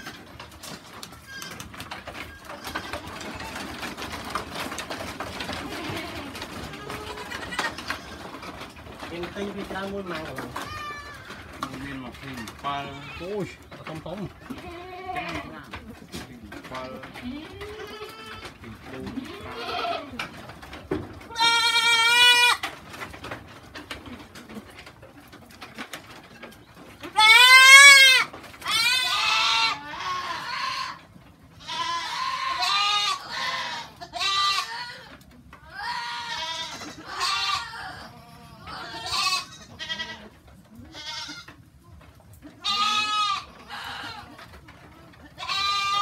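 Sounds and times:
goats bleating: 5.4 - 8.4, 10.5 - 11.5, 12.4 - 13.6, 14.5 - 15.6, 17.0 - 20.2, 21.2 - 22.6, 27.1 - 31.0, 31.6 - 41.5, 42.6 - 44.5, 45.2 - 46.0.

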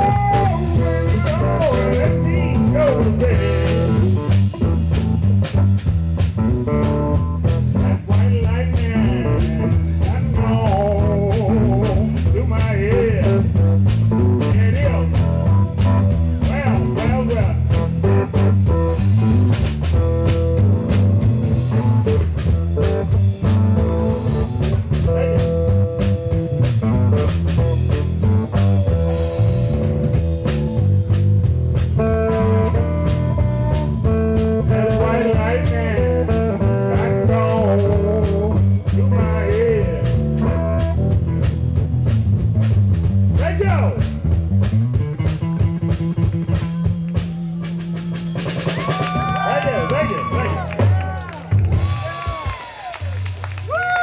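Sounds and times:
man singing: 0.0 - 3.7, 7.7 - 13.6, 32.3 - 40.6
electric blues band playing: 0.0 - 54.0.

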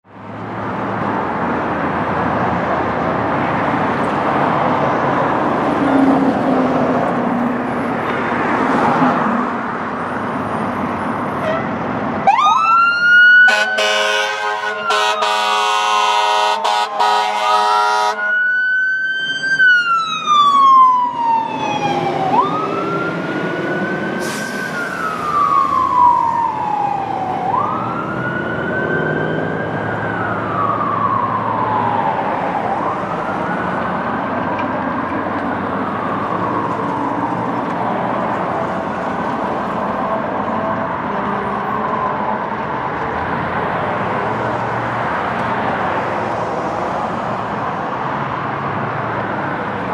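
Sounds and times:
fire engine running: 9.5 - 49.9
air horn blasts: 11.4 - 11.7, 13.5 - 18.3
siren wailing: 12.2 - 43.3.

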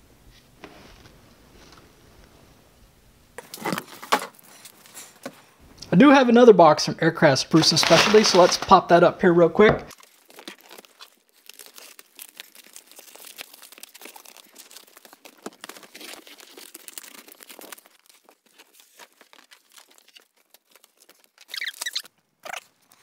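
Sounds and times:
cardboard flaps rustling and scraping: 3.4 - 5.6, 7.5 - 8.9, 14.3 - 22.6
knife cutting packing tape: 7.6 - 8.7, 9.9 - 23.0.

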